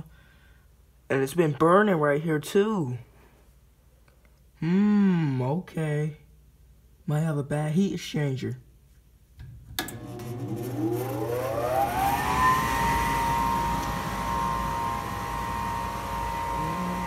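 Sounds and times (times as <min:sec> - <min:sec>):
furnace motor click: 0:09.8 - 0:10.3
furnace motor whining: 0:09.8 - 0:17.0.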